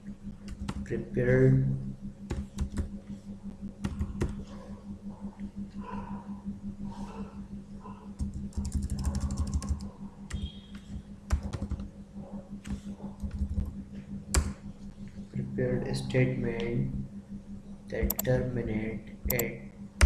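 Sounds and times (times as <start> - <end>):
low hum: 0.0 - 20.0
typing on computer keyboard: 0.5 - 0.9, 2.3 - 2.9, 3.8 - 4.4, 8.2 - 11.9, 12.6 - 13.7, 18.1 - 18.3, 19.3 - 19.5.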